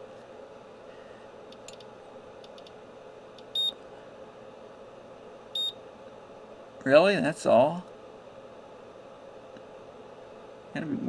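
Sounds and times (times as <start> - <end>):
faint steady hum: 0.0 - 11.0
short electronic beeps: 3.6 - 3.8, 5.6 - 5.8.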